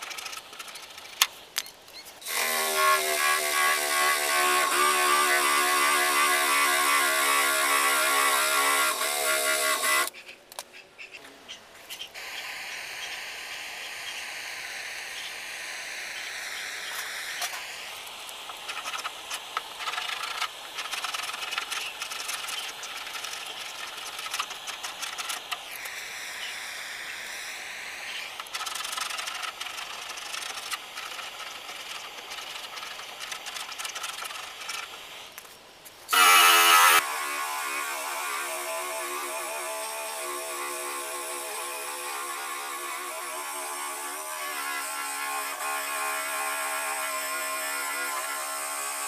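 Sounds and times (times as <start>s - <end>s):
drill with wire wheel whining: 2.2s - 10.1s, 12.2s - 19.5s, 20.1s - 34.8s, 36.1s - 49.0s
gas torch hissing: 12.2s - 19.6s, 23.8s - 28.5s
scraper scratching off paint: 18.5s - 25.6s, 28.3s - 35.0s.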